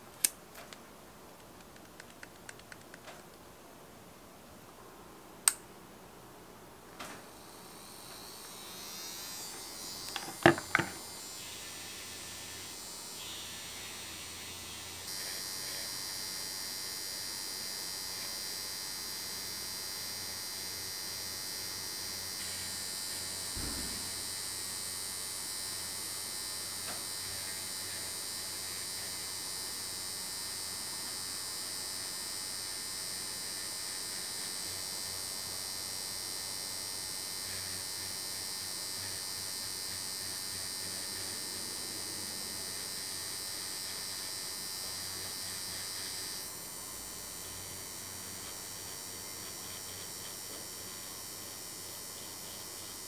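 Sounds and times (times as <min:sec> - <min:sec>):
electric nail drill whine: 0:07.0 - 0:53.0
brief low bump: 0:23.6 - 0:24.2.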